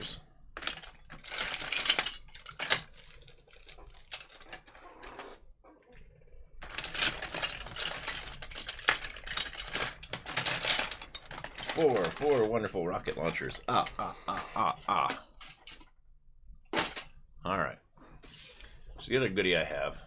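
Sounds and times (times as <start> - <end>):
toy cars clattering in plastic tub: 0.6 - 4.8, 6.6 - 13.9.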